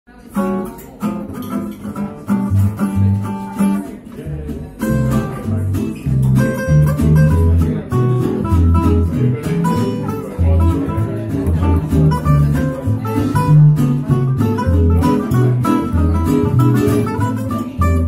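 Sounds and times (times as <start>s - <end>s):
higher plucked string notes: 0.1s - 18.0s
upright bass plucked: 0.4s - 18.0s.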